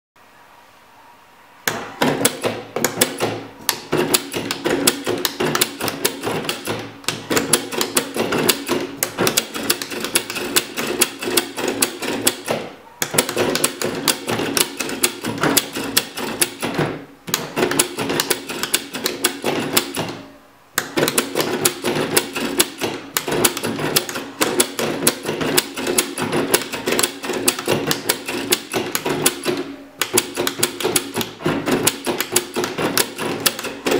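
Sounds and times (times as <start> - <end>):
steady hum: 0.2 - 33.9
printer carriage whirring and clattering: 1.6 - 33.9
toggle switches clicking: 20.8 - 33.9.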